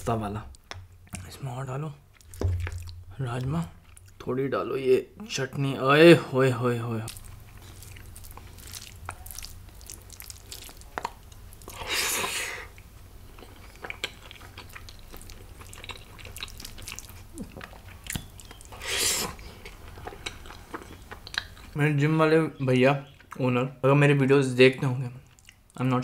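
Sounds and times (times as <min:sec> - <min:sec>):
chewing food: 0:02.1 - 0:04.2, 0:07.0 - 0:21.8, 0:25.2 - 0:25.8.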